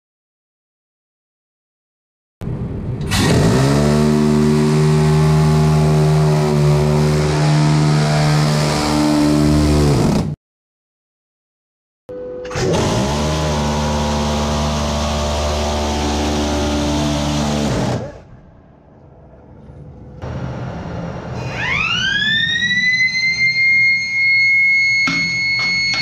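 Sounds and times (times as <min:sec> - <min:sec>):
machine whine: 0:02.4 - 0:10.1, 0:12.1 - 0:26.0
knocks: 0:25.0 - 0:26.0.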